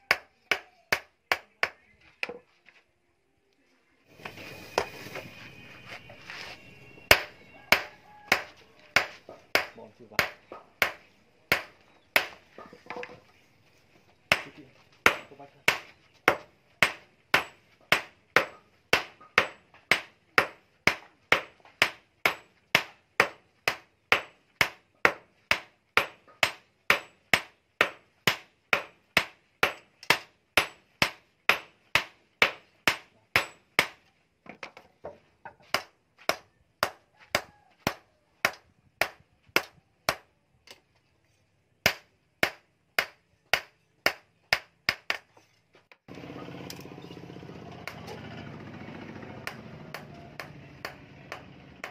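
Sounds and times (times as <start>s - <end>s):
hammer striking metal on anvil: 7.0s - 12.7s, 14.3s - 34.0s, 49.4s - 51.9s.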